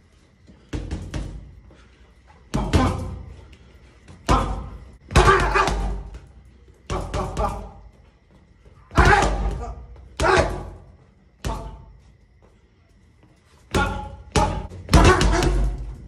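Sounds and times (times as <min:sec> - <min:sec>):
gloves punching heavy bag: 0:02.5 - 0:03.3, 0:04.2 - 0:06.3, 0:08.9 - 0:10.8, 0:13.7 - 0:16.0.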